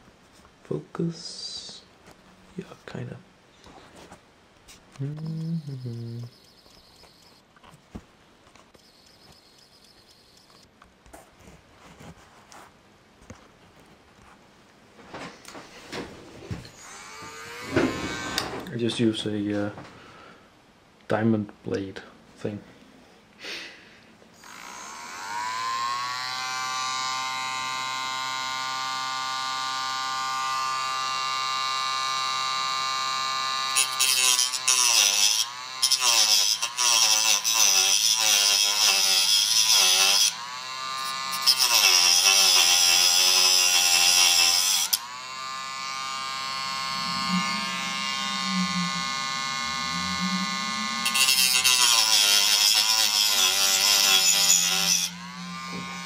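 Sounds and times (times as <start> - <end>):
rotary tool whining: 4.9 - 7.4, 8.6 - 10.7, 16.6 - 18.7, 24.4 - 56.0.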